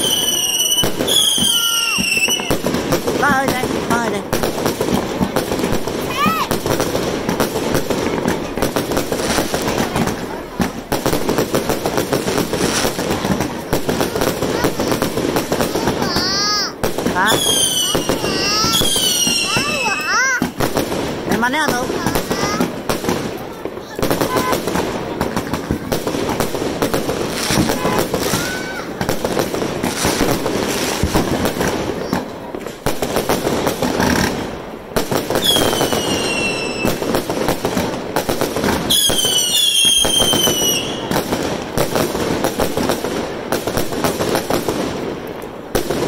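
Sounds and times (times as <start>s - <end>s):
firework whistles falling in pitch: 0.0s - 2.6s, 17.3s - 20.5s, 35.4s - 37.0s, 38.9s - 41.1s
fireworks popping and crackling: 0.0s - 46.0s.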